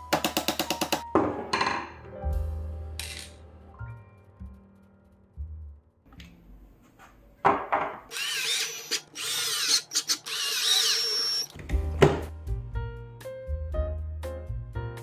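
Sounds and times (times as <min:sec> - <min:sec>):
cordless drill motor whine: 0:08.1 - 0:11.5.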